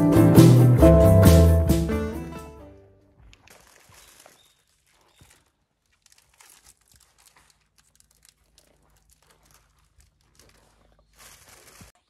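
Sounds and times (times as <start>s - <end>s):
plastic bags crinkling: 3.4s - 12.0s.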